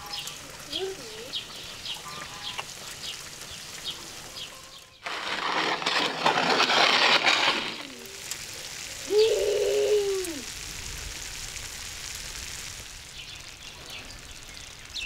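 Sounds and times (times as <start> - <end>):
metal pan scraping on brick: 5.0 - 8.4.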